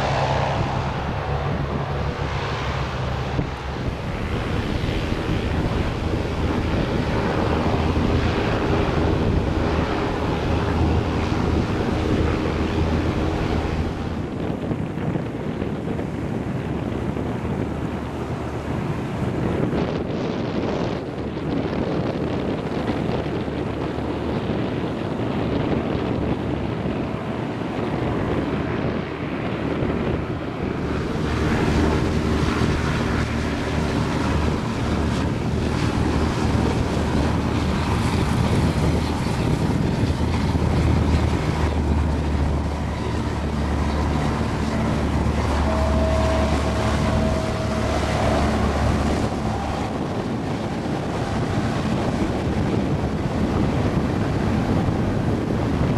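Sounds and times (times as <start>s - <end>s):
hovercraft engine rumble: 0.0s - 55.9s
high whine: 29.7s - 55.9s.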